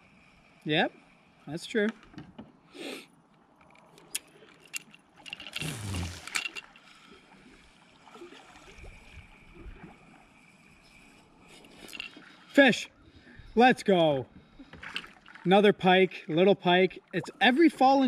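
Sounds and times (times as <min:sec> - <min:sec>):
fishing reel clicks and rattles: 0:03.6 - 0:07.0, 0:10.8 - 0:12.6.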